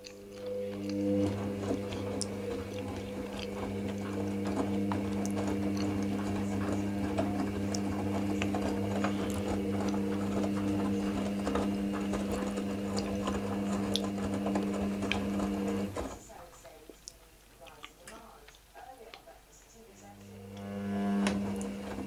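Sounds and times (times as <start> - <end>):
washing machine motor humming: 0.0 - 16.5, 19.8 - 22.0.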